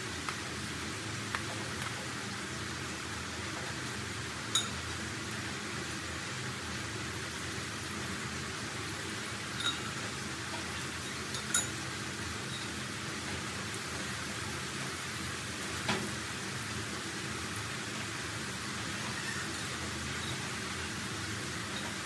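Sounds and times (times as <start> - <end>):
food sizzling in hot oil: 0.0 - 22.0.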